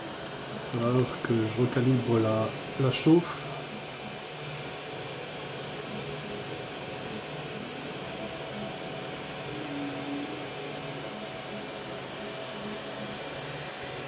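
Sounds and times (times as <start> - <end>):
cooling fans hissing: 0.0 - 14.0
stepper motors humming: 5.6 - 13.6.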